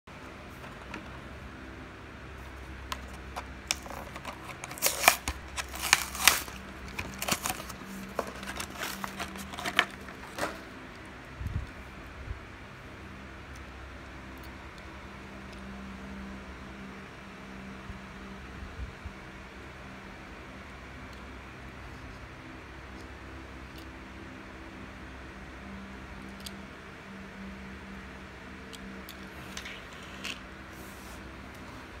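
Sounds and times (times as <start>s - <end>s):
steady low hum: 0.1s - 32.0s
plastic packaging crinkling and ripping: 3.0s - 10.6s.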